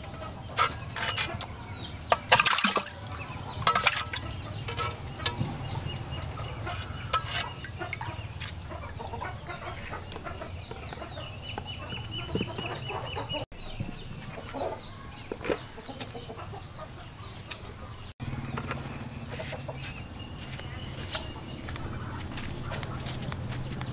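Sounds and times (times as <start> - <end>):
chickens clucking: 0.0 - 23.9
water splashing in a jar: 2.1 - 8.9.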